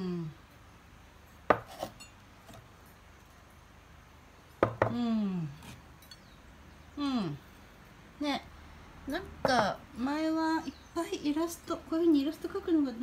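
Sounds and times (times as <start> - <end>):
ceramic mug knocking on board: 1.5 - 1.7, 4.6 - 5.0
faint ceramic clinks: 1.5 - 3.0, 5.6 - 6.4.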